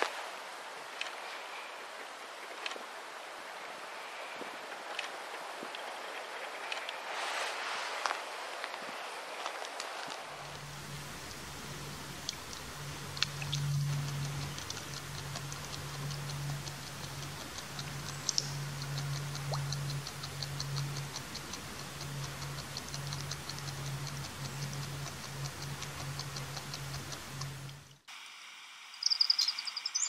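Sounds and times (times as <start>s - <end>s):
beaver chewing clicks: 10.4s - 28.0s
low steady hum: 10.4s - 30.0s.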